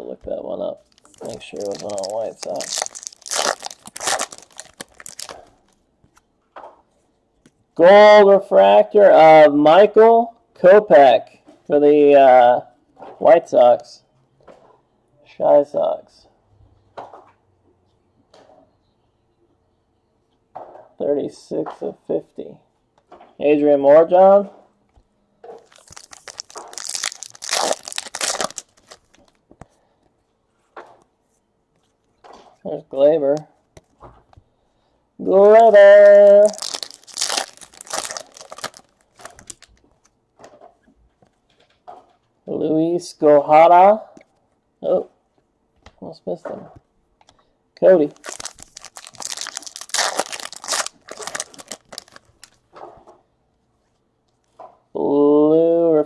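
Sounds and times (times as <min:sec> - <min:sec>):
foil wrapper crinkling: 0:00.8 - 0:05.8, 0:25.6 - 0:29.4, 0:35.6 - 0:40.1, 0:48.1 - 0:52.6.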